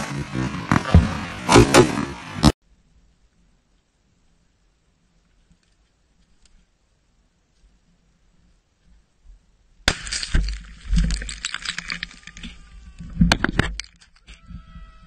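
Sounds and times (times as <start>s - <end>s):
dry twigs crackling and snapping: 9.9s - 12.6s.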